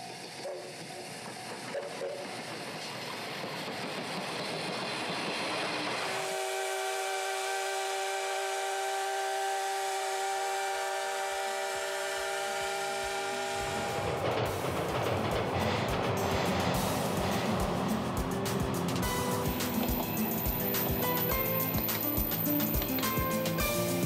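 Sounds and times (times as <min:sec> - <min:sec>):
steam hissing: 0:00.0 - 0:24.0
steam whistle blast: 0:05.9 - 0:14.4.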